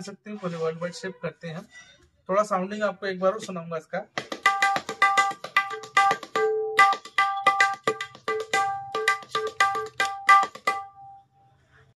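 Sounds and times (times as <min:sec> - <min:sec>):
tabla drum strokes ringing: 0:04.2 - 0:11.2.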